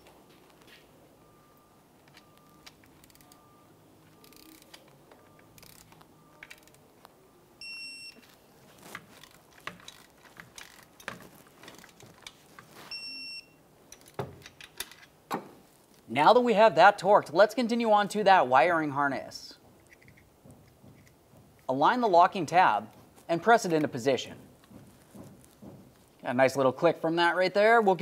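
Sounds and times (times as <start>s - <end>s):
short electronic beeps: 1.2s - 6.4s, 7.2s - 8.3s, 12.9s - 13.6s
torque wrench ratchet clicks: 5.6s - 5.9s.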